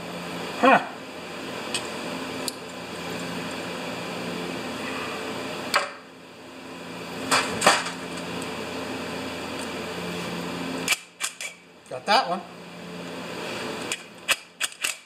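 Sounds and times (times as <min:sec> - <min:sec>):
steady electric hum: 0:00.0 - 0:15.0
sharp click: 0:10.9 - 0:11.6, 0:13.9 - 0:15.0.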